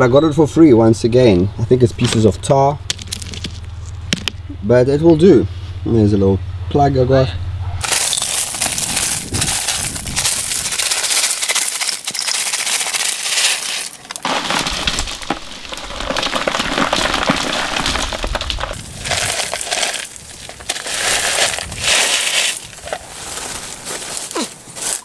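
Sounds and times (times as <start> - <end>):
broken bricks and stones clattering: 2.9 - 4.3, 7.8 - 25.0.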